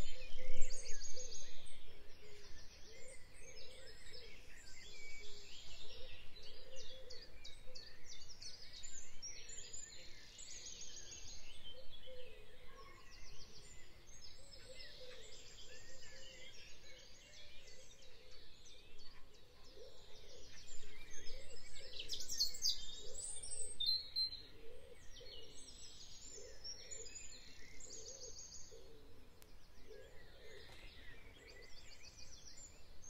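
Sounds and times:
outdoor background noise: 0:00.0 - 0:33.0.

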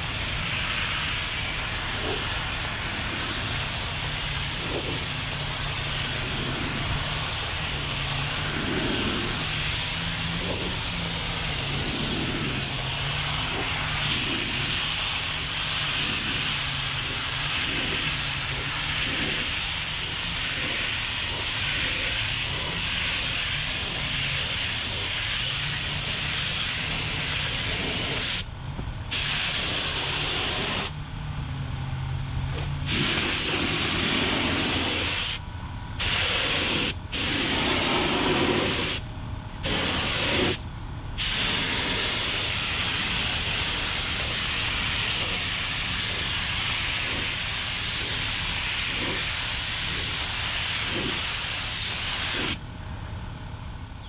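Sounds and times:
spray gun hissing: 0:00.0 - 0:28.4, 0:29.1 - 0:31.0, 0:32.8 - 0:35.4, 0:36.0 - 0:39.0, 0:39.6 - 0:40.6, 0:41.2 - 0:52.6.

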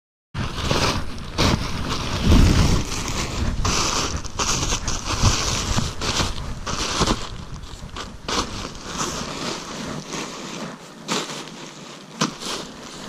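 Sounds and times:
wind buffeting microphone: 0:00.4 - 0:10.2
rustling and crackling: 0:00.4 - 0:13.0.

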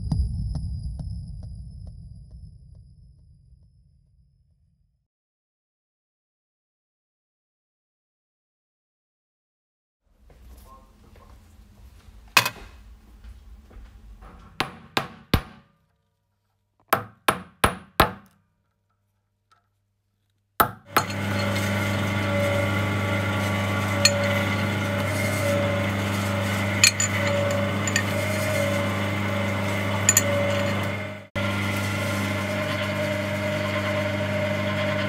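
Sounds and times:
hammer striking metal: 0:20.6 - 0:21.6, 0:23.9 - 0:24.7, 0:26.7 - 0:28.8, 0:30.0 - 0:31.0
rolling mill electric hum: 0:20.9 - 0:35.0.

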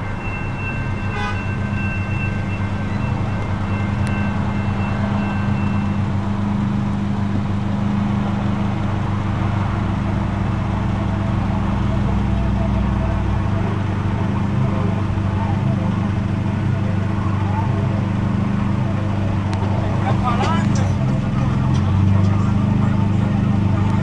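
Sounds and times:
faint high ringing tone: 0:00.0 - 0:06.5
car engine idling: 0:00.0 - 0:24.0.

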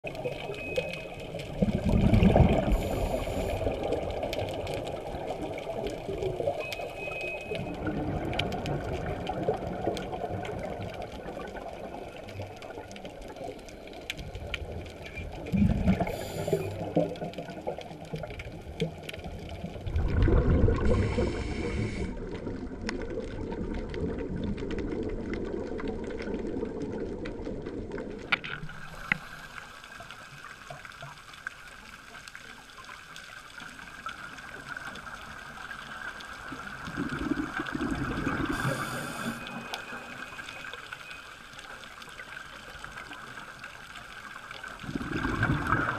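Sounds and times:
underwater crackle of clicks: 0:00.0 - 0:45.9
diver exhaling bubbles: 0:01.5 - 0:04.2, 0:15.5 - 0:17.3, 0:19.8 - 0:22.4, 0:44.8 - 0:45.9.

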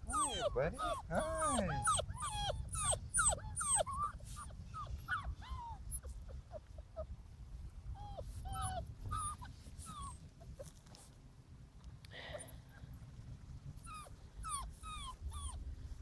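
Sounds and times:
puppies whining: 0:00.0 - 0:07.1, 0:08.0 - 0:10.8, 0:13.8 - 0:15.6.

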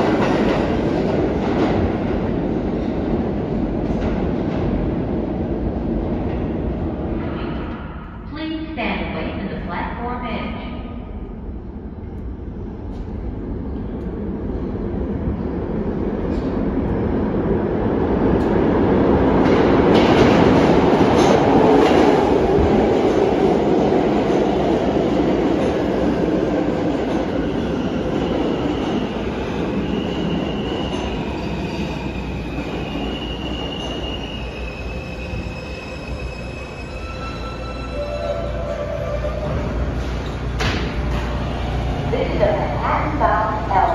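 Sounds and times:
train wheels rumbling on rails: 0:00.0 - 0:08.3, 0:11.7 - 0:43.9
train brakes squealing: 0:29.7 - 0:39.5.

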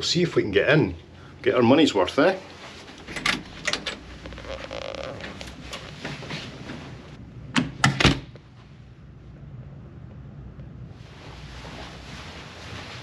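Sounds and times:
low steady hum: 0:00.0 - 0:13.0
door closing and latching: 0:03.0 - 0:04.5, 0:07.6 - 0:08.3.

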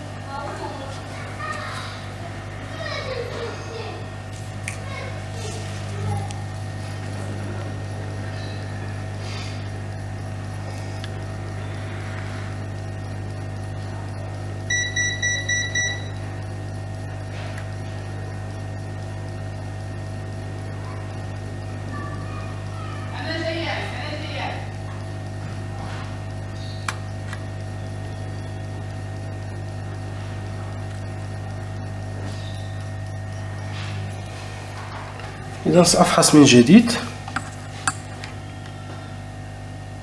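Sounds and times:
hot-air station hissing hum: 0:00.0 - 0:40.0
high electronic beeps: 0:14.7 - 0:16.2.

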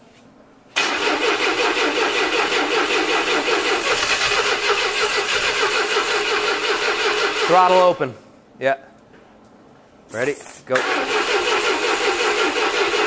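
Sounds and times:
engine starter cranking: 0:00.8 - 0:07.8, 0:10.8 - 0:13.0.

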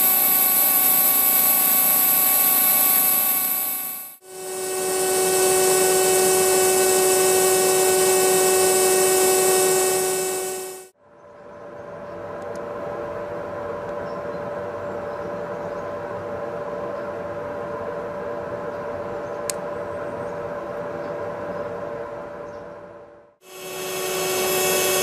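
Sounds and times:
hydraulic motor whine: 0:00.0 - 0:11.0, 0:23.4 - 0:25.0.

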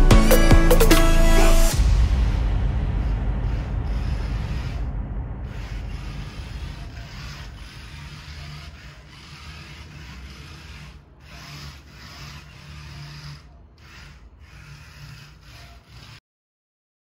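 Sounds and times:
rough rolling scrape: 0:01.6 - 0:16.2
small gear motors humming: 0:05.5 - 0:16.2.

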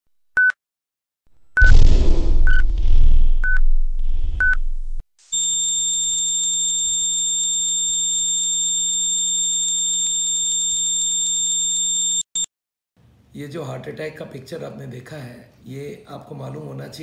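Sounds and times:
low rumble: 0:01.6 - 0:05.0
cardiac monitor beeping: 0:04.4 - 0:04.6.

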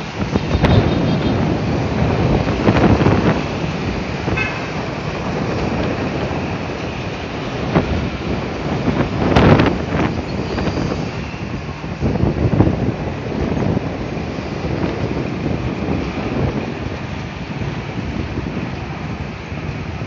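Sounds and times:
city street traffic: 0:00.0 - 0:20.0
wind buffeting microphone: 0:00.0 - 0:20.0
vehicle horn toot: 0:00.4 - 0:01.5, 0:04.3 - 0:04.8.

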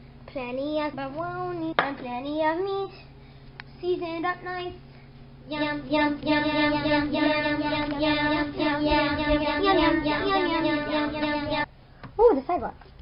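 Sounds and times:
child singing: 0:00.3 - 0:03.1, 0:03.8 - 0:04.8, 0:05.5 - 0:11.7.

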